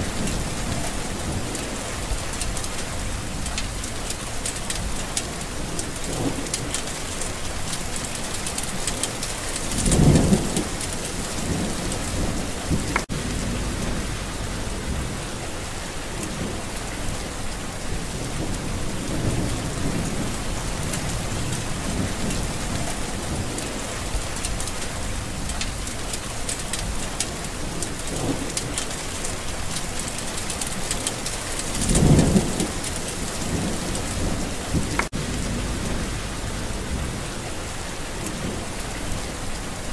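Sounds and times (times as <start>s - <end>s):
thunder rumbling: 0.0s - 26.2s, 30.4s - 39.7s
heavy rain hissing: 0.0s - 39.9s.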